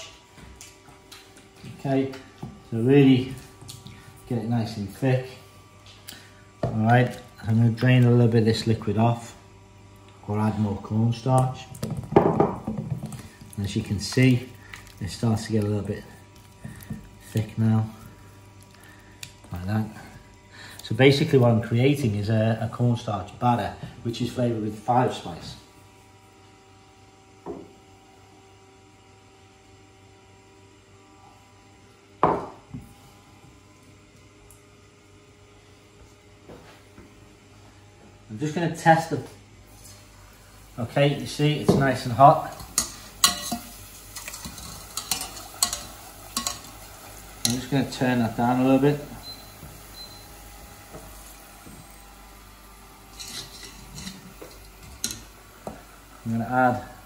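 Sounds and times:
faint steady hum: 0:00.0 - 0:57.0
hot oil frying: 0:11.2 - 0:21.4, 0:39.7 - 0:57.0
metal utensils clinking: 0:42.5 - 0:47.7, 0:53.1 - 0:55.3.

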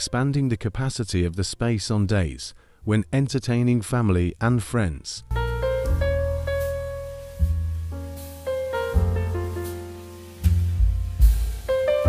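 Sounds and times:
sustained keyboard notes: 0:05.2 - 0:10.1
deep bass line: 0:05.3 - 0:12.0.

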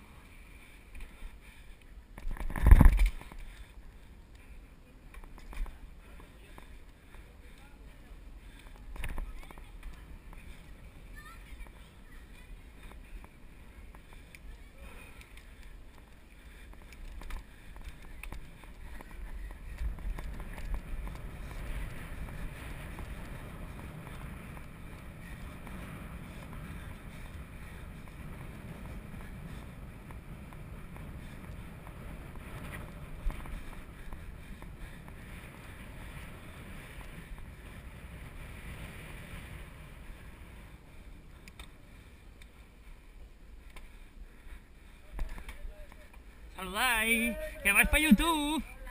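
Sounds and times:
wind rumbling on microphone: 0:00.0 - 0:04.3, 0:05.0 - 0:46.6
bicycle tyre and road noise: 0:00.0 - 0:48.9
small clicks: 0:41.3 - 0:41.8, 0:43.6 - 0:43.9.

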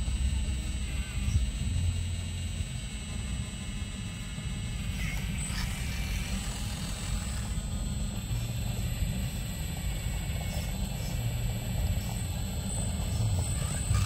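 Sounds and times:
hydraulic pump and motor drone: 0:00.0 - 0:14.0.

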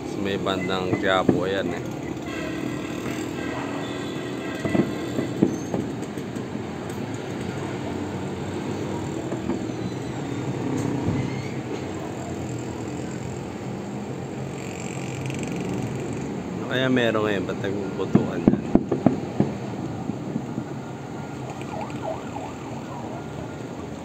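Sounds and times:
low hum of city noise: 0:00.0 - 0:24.0
distant firework pops: 0:18.1 - 0:20.7.

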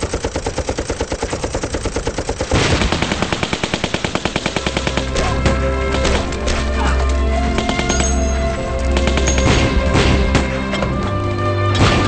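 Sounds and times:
machine gun firing: 0:00.0 - 0:06.7, 0:07.4 - 0:10.7
more gunfire: 0:02.4 - 0:06.6.

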